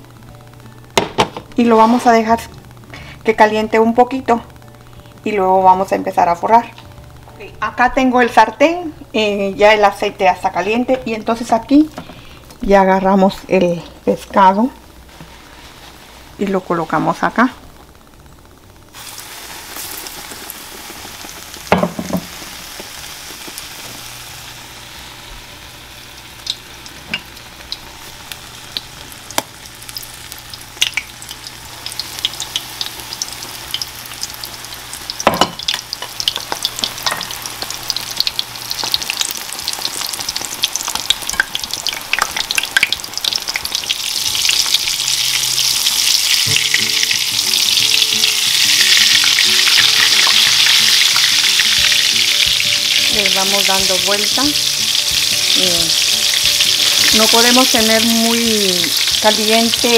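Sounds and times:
fish frying in hot oil: 0:17.7 - 0:59.9.

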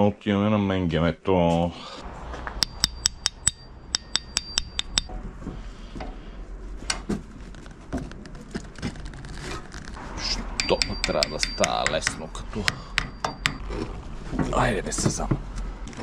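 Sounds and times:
sharp metal clicking: 0:02.6 - 0:05.1, 0:10.6 - 0:13.7.

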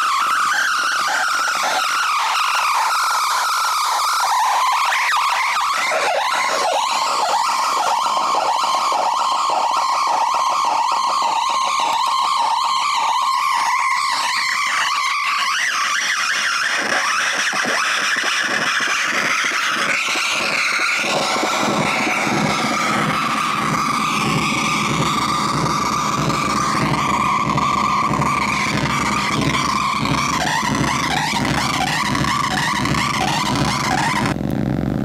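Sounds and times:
feedback squealing with delay repeats: 0:00.0 - 0:35.0
low buzzing rumble: 0:20.5 - 0:35.0.

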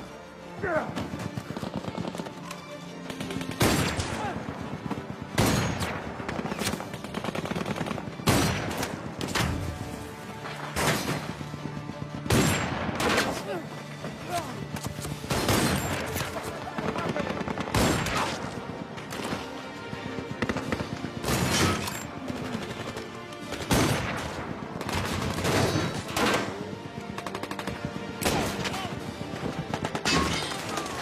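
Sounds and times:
film music score: 0:00.0 - 0:31.0.

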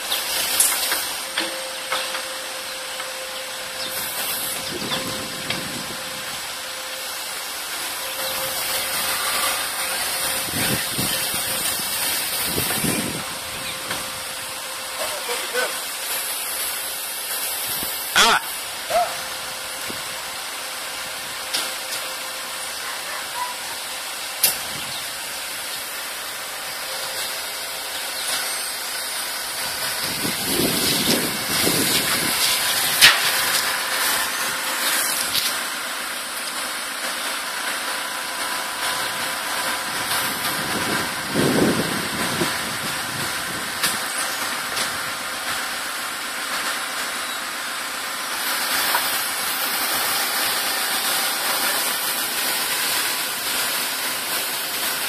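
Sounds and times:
diesel engine running: 0:00.0 - 0:55.0
steady hiss: 0:00.0 - 0:55.0.

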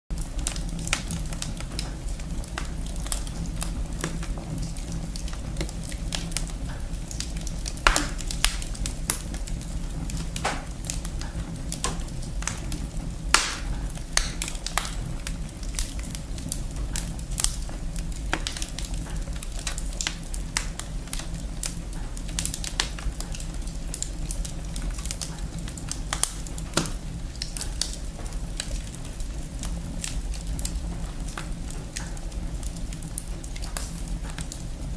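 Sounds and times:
fire low rumble: 0:00.1 - 0:34.9
wood fire crackling and popping: 0:00.1 - 0:34.9.

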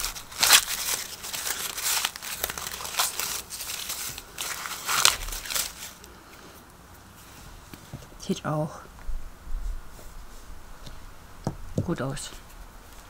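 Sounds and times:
corn husks rustling and ripping: 0:00.0 - 0:06.6.

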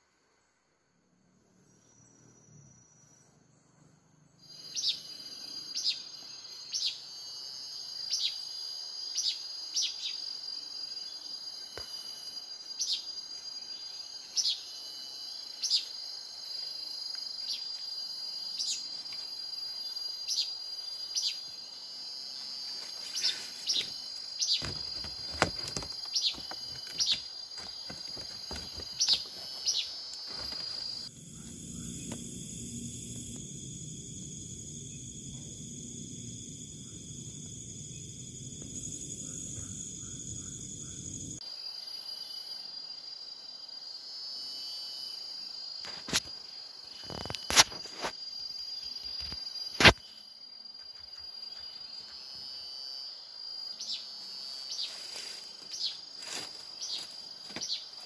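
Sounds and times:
insects droning: 0:00.0 - 0:58.0
sharp clicks and knocks: 0:24.6 - 0:29.4.

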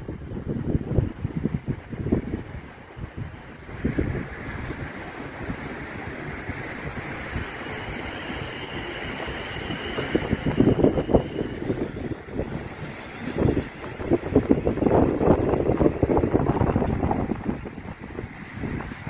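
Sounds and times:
train rolling past: 0:00.0 - 0:19.0
wind buffeting microphone: 0:00.0 - 0:19.0
wheels squealing: 0:03.9 - 0:11.6.

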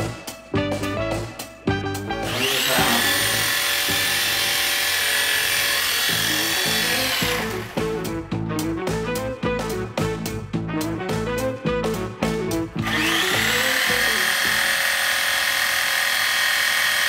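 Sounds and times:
toy helicopter motor whine: 0:02.3 - 0:08.0, 0:12.8 - 0:17.0.

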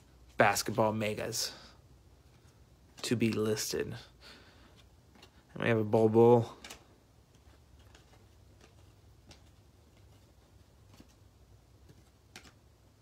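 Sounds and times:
low steady hum: 0:00.0 - 0:13.0
trading cards flipping: 0:04.7 - 0:05.6, 0:06.5 - 0:12.7.

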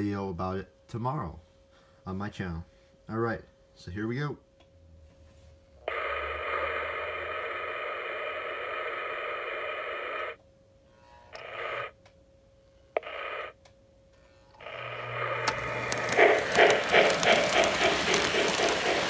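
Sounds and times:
steam locomotive hiss: 0:15.6 - 0:19.0.

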